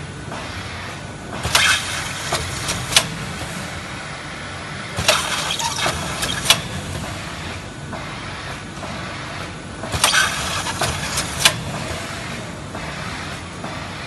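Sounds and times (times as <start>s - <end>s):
packaging machine conveyor hum: 0.0s - 14.0s
sealing head hiss and clack: 1.3s - 3.2s, 7.9s - 13.9s.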